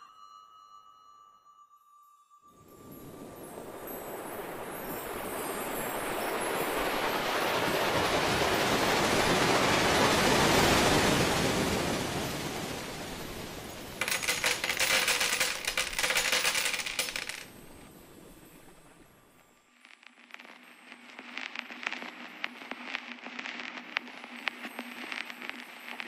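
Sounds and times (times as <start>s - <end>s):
screws clattering on tabletop: 14.0s - 17.5s.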